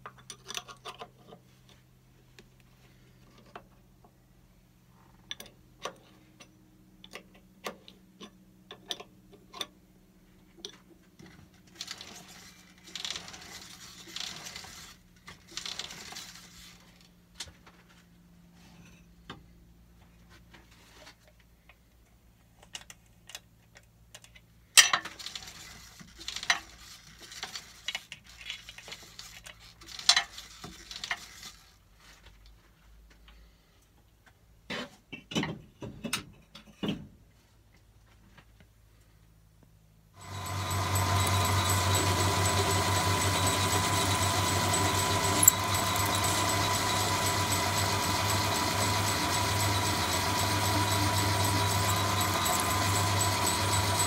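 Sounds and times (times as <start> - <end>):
scraping rattle: 40.2 - 54.0.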